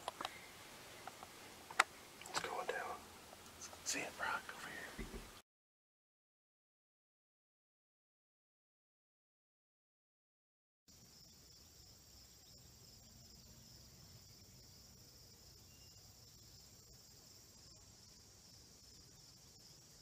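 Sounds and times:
crickets and insects chirping: 0:00.0 - 0:05.2, 0:10.9 - 0:20.0.

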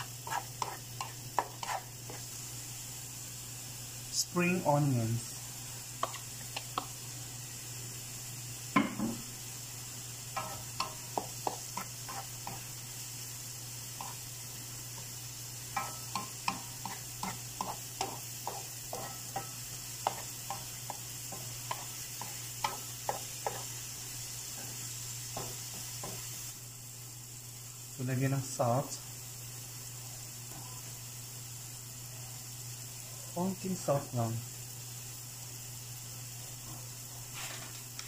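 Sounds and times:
wooden spatula scraping a pan: 0:00.0 - 0:02.3, 0:10.4 - 0:12.7, 0:15.8 - 0:23.7
vegetables sizzling: 0:00.0 - 0:38.0.

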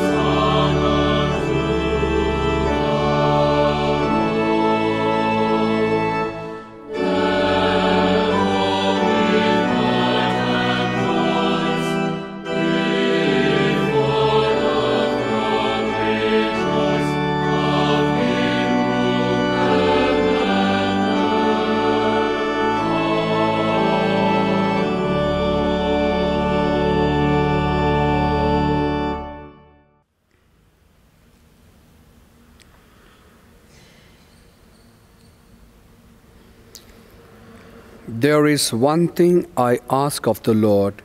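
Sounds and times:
choir singing a hymn: 0:00.0 - 0:29.5
organ accompaniment: 0:00.0 - 0:30.0.

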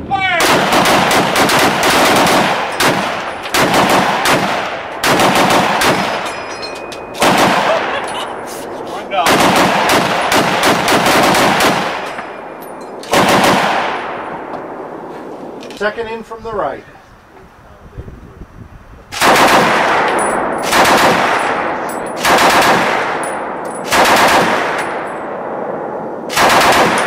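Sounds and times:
automatic rifle bursts: 0:00.4 - 0:06.2, 0:09.3 - 0:12.0, 0:13.1 - 0:13.8, 0:19.2 - 0:19.9, 0:20.6 - 0:21.5, 0:22.2 - 0:23.2, 0:23.8 - 0:24.9, 0:26.3 - 0:27.0.

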